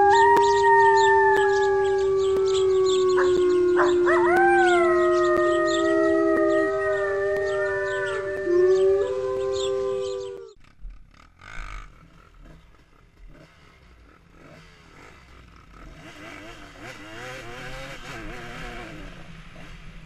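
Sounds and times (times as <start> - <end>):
canines howling: 0.0 - 10.6.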